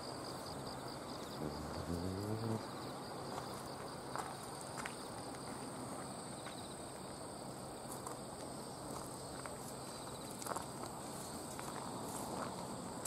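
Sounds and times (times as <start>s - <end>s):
insects chirring: 0.0s - 13.0s
footsteps scuffing on dirt path: 3.3s - 6.7s, 7.8s - 13.0s.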